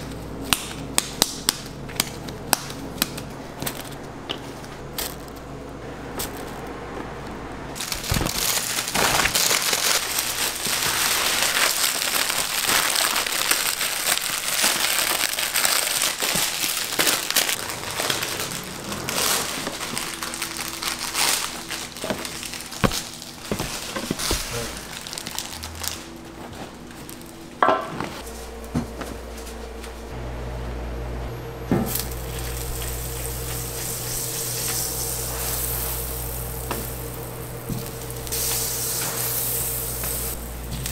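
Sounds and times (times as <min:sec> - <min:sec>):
steady hum: 0:00.0 - 0:40.9
plastic crinkling and rustling: 0:07.8 - 0:27.4
butter sizzling on a griddle: 0:31.9 - 0:40.9.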